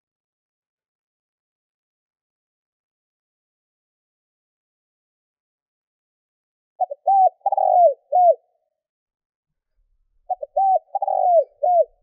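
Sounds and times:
dove cooing: 0:06.8 - 0:08.5, 0:10.3 - 0:12.0.

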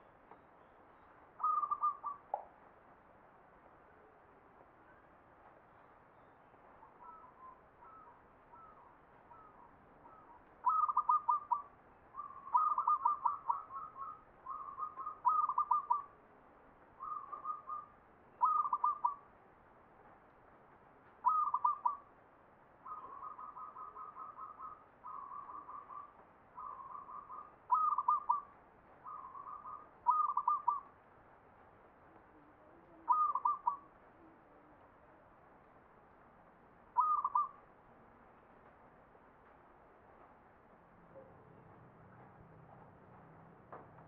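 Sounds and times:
dove cooing: 0:01.4 - 0:02.2, 0:07.0 - 0:16.1, 0:17.0 - 0:19.2, 0:21.2 - 0:22.1, 0:22.8 - 0:30.9, 0:32.6 - 0:33.9, 0:37.0 - 0:37.6.

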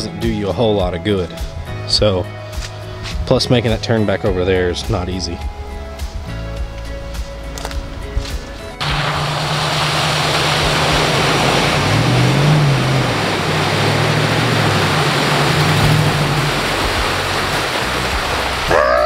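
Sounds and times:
water splashing against vehicle: 0:07.5 - 0:19.0
engine revving: 0:08.8 - 0:18.8.

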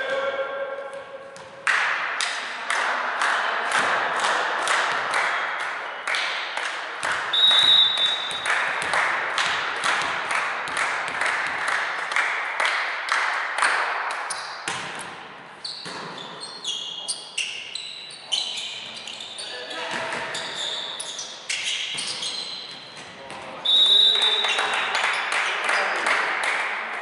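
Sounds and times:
rhythmic group clapping: 0:01.6 - 0:14.9, 0:24.1 - 0:27.0
referee's whistle blast: 0:07.3 - 0:08.3, 0:23.6 - 0:24.4
sneakers squeaking on court: 0:14.3 - 0:23.4.

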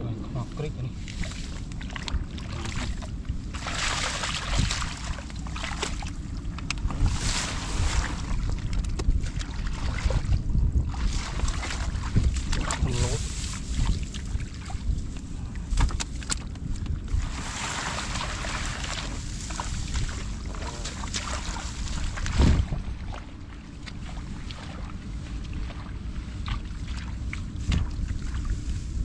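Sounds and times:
wind buffeting microphone: 0:00.0 - 0:29.0
hands digging in wet mud: 0:03.5 - 0:10.2, 0:11.0 - 0:16.5, 0:17.2 - 0:22.8.

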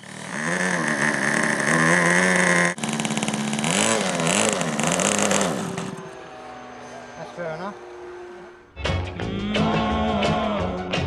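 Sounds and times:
model aircraft engine revving: 0:00.0 - 0:08.7.

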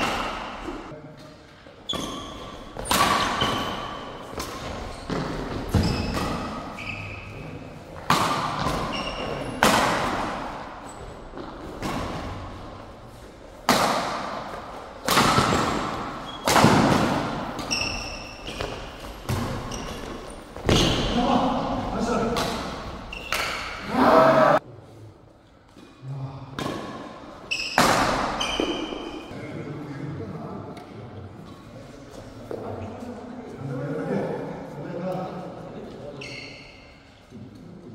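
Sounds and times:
rackets hitting shuttlecock: 0:00.0 - 0:00.9, 0:01.9 - 0:06.8, 0:08.0 - 0:10.7, 0:13.6 - 0:21.2, 0:22.2 - 0:23.8, 0:26.6 - 0:29.3
shoes squeaking on court: 0:01.8 - 0:07.6, 0:08.6 - 0:09.7, 0:15.5 - 0:16.6, 0:17.3 - 0:21.2, 0:22.7 - 0:23.8, 0:27.4 - 0:29.3, 0:36.1 - 0:37.0.

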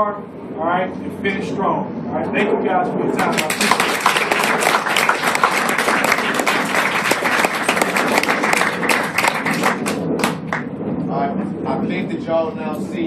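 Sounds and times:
crowd applauding: 0:03.2 - 0:10.7.

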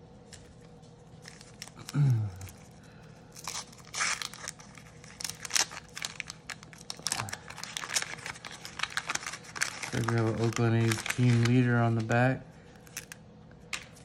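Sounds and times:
wax paper wrapper tearing: 0:01.2 - 0:14.0
low vocal hum: 0:01.7 - 0:03.0.

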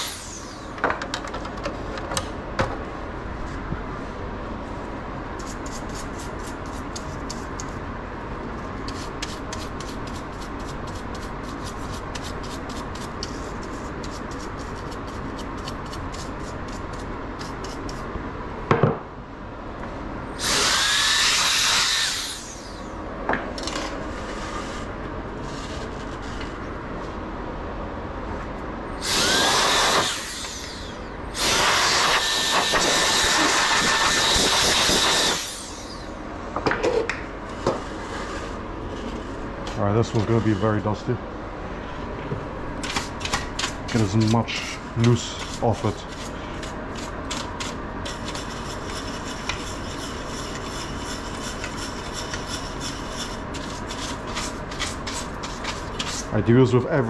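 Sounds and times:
electric air blower rushing: 0:00.0 - 0:00.8, 0:20.4 - 0:23.0, 0:29.0 - 0:36.2.

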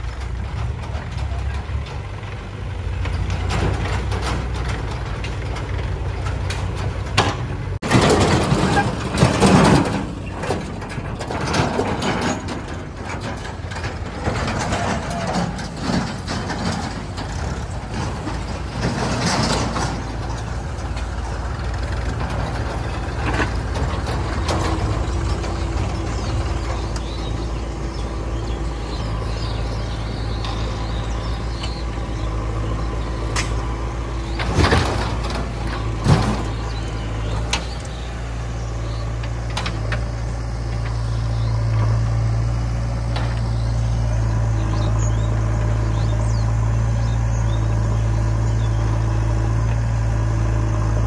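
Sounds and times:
diesel engines running: 0:00.0 - 0:51.0
metal clanks: 0:02.9 - 0:42.2.

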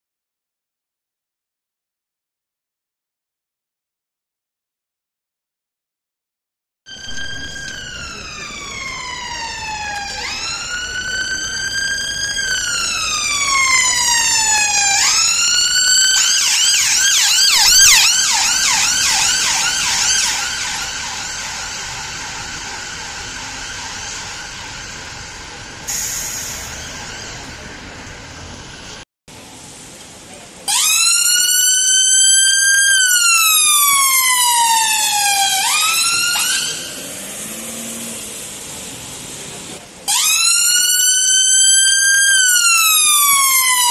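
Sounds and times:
ambulance siren wailing and yelping: 0:06.9 - 0:29.0, 0:30.7 - 0:37.8, 0:40.1 - 0:43.9.

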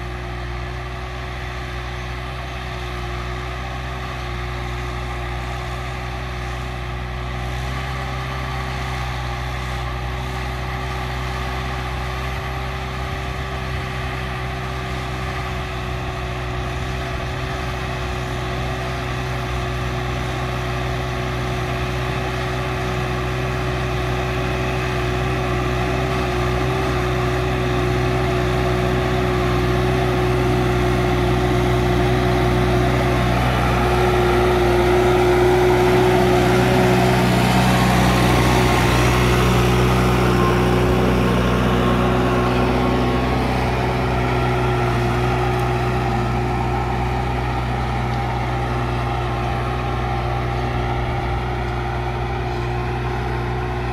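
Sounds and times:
tractor diesel engine running: 0:00.0 - 0:53.9
steady whine: 0:29.2 - 0:53.9.

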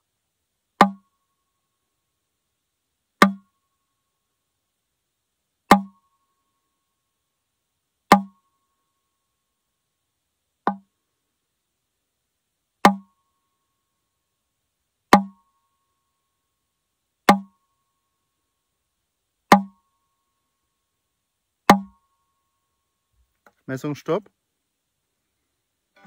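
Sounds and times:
hammer tapping mandolin: 0:12.9 - 0:13.1, 0:15.2 - 0:15.4, 0:19.5 - 0:19.8, 0:21.7 - 0:22.0.

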